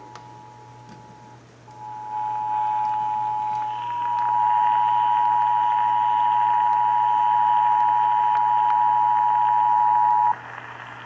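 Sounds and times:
two-tone alarm through radio speaker: 1.8s - 10.3s.

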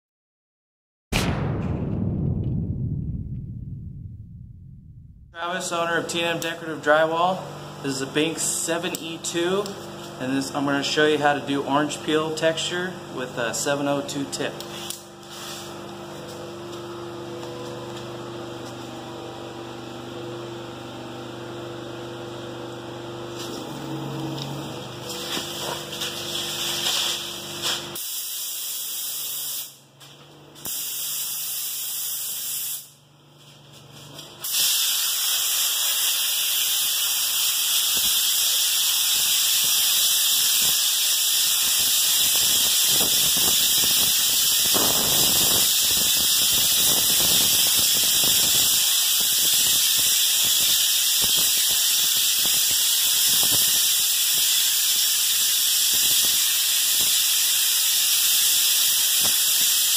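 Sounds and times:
spray gun airy hiss: 25.2s - 29.8s, 30.6s - 32.9s, 34.4s - 59.9s.

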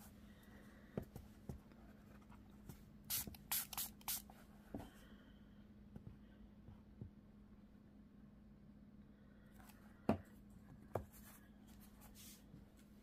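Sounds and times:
spray bottle spritzes: 3.1s - 4.2s.

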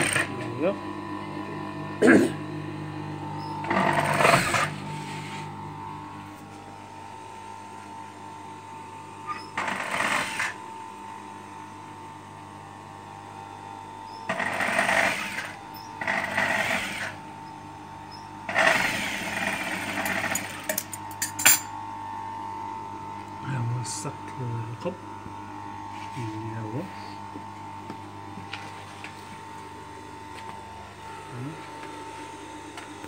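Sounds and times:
sewing machine stitching: 0.0s - 0.4s, 3.6s - 4.7s, 9.6s - 10.6s, 14.3s - 17.2s, 18.5s - 20.8s
motor humming: 0.0s - 33.0s.

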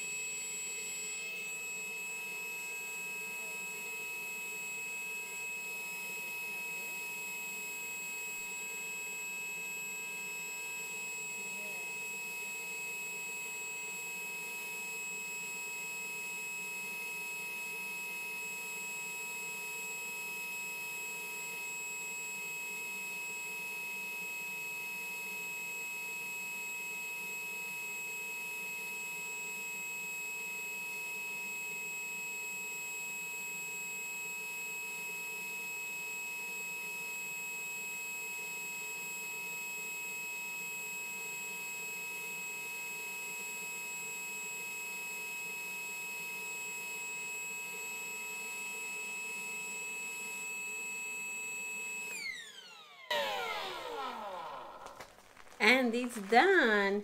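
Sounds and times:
compressor motor hum and whine: 51.9s - 55.0s.

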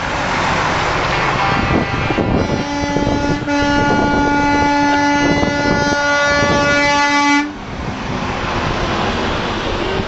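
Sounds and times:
trucks rumbling past: 0.0s - 10.0s
truck air horn blast: 1.2s - 7.6s.

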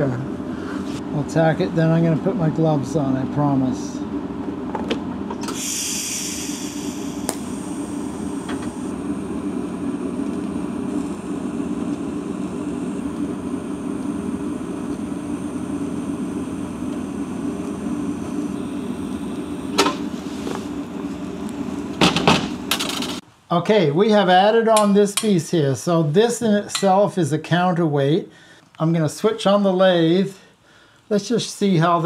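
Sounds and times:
thin high whine: 5.3s - 23.2s
welding arc buzzing: 5.3s - 23.2s.

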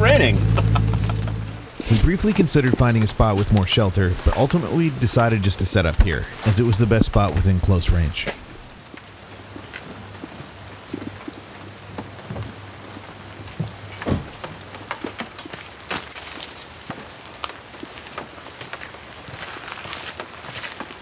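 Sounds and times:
rain hiss: 0.0s - 21.0s
rain drops ticking on hard surface: 0.5s - 21.0s.

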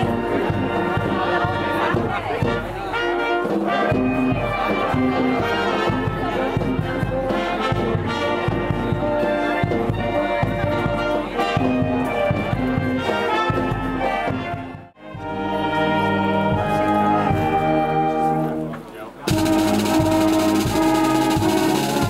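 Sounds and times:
brass band playing: 0.0s - 22.0s.

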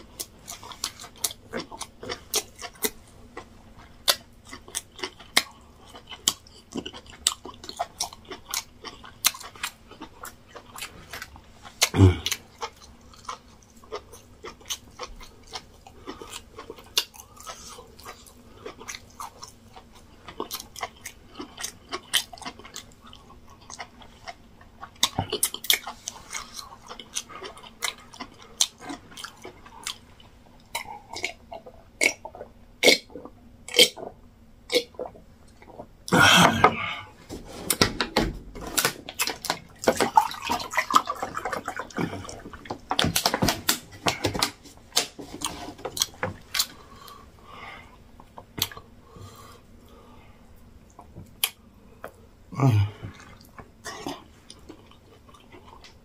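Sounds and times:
wet chewing and lip-smacking: 0.0s - 36.0s, 38.7s - 47.2s.

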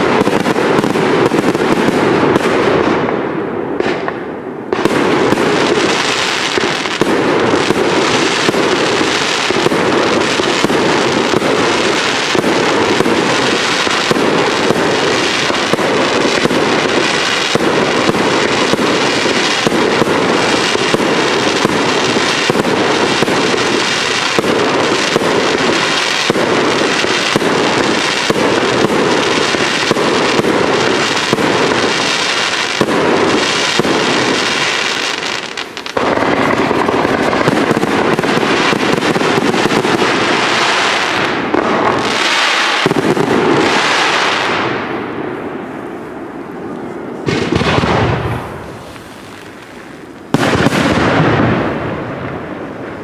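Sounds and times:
fireworks bangs and crackling pops: 0.0s - 53.0s.

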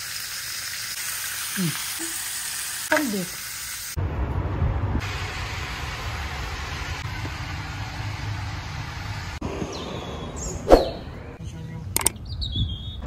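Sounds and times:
even hiss: 0.8s - 4.0s
low outdoor rumble: 4.0s - 13.0s.

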